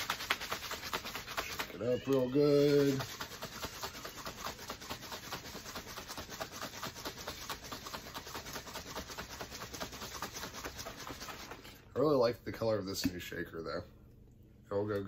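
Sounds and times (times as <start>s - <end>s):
water sloshing in shaker bottle: 0.0s - 12.0s.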